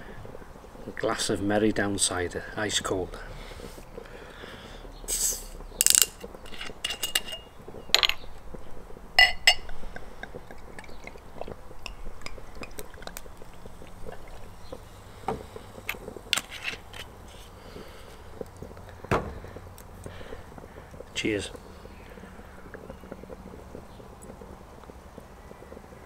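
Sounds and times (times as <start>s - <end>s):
glass clink: 6.8s - 8.3s, 9.2s - 9.8s.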